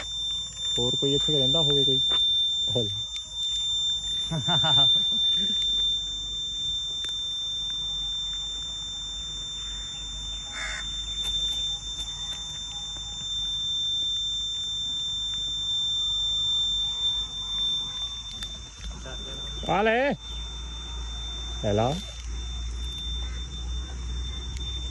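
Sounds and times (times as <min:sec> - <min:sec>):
brief insect call: 0:00.0 - 0:24.9
insect drone: 0:00.0 - 0:24.9.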